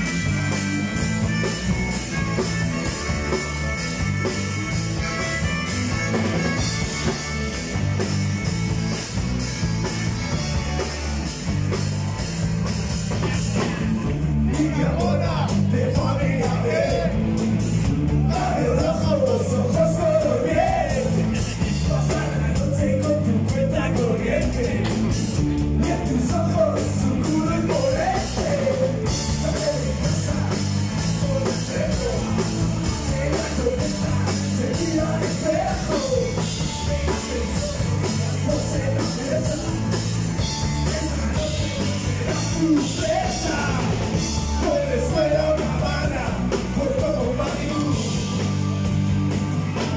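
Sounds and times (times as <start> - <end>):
drum kit: 0.0 - 49.9
electric bass: 0.0 - 49.9
electric guitar: 0.0 - 49.9
person singing: 25.8 - 48.5.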